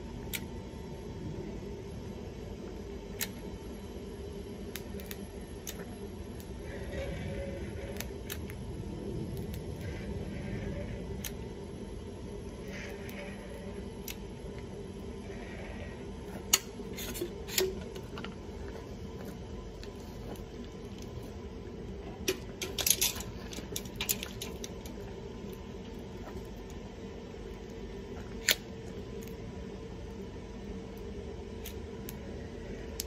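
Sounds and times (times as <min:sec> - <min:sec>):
steady low hum: 0:00.0 - 0:33.0
tools clicking and clattering: 0:22.3 - 0:24.8.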